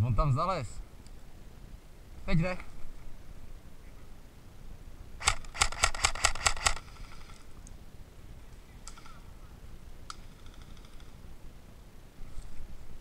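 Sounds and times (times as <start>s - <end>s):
airsoft rifle shots: 5.2s - 7.3s.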